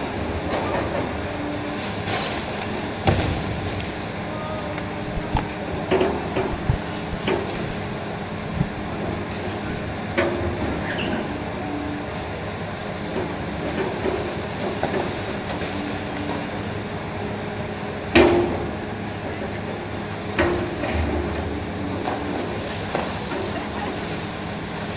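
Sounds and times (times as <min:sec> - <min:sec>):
excavator running: 0:00.0 - 0:24.9.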